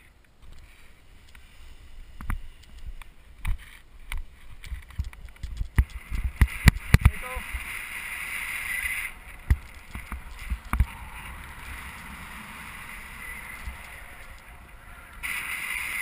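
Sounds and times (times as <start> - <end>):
wind rumbling on microphone: 1.3 - 16.0
wind buffeting thumps: 2.2 - 7.7, 9.1 - 15.2.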